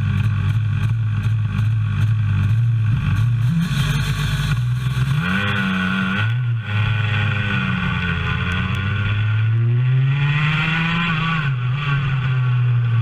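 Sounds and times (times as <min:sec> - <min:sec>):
kart engine revving: 0:00.0 - 0:13.0.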